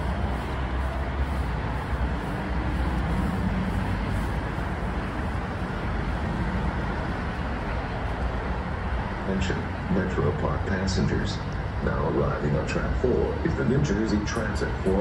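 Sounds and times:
train wheels rumbling on rails: 0.0s - 11.8s.

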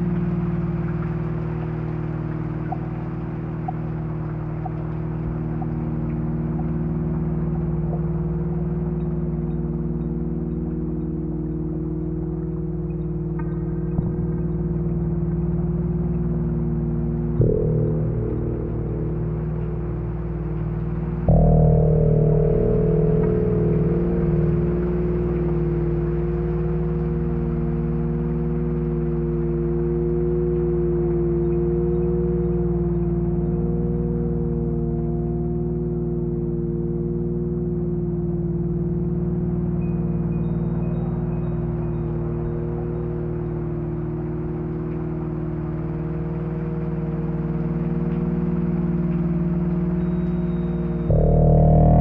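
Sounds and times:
soft wash of noise: 0.0s - 52.0s
synthesizer drone: 0.0s - 52.0s.

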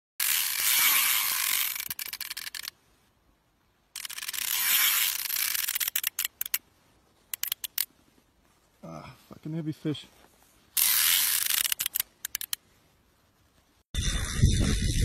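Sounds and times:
fishing reel ratcheting clicks: 0.2s - 2.7s, 4.0s - 6.6s, 7.3s - 7.9s, 10.8s - 12.6s.

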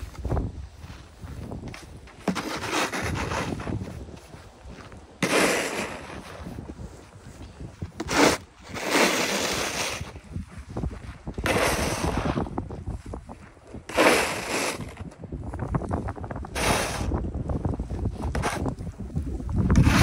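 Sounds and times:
wind rumble on microphone: 0.0s - 20.0s
snow shovel scraping snow: 1.6s - 3.9s, 5.2s - 6.5s, 8.0s - 10.3s, 11.4s - 12.5s, 13.9s - 15.1s, 16.5s - 17.2s, 18.2s - 18.7s, 19.7s - 20.0s.

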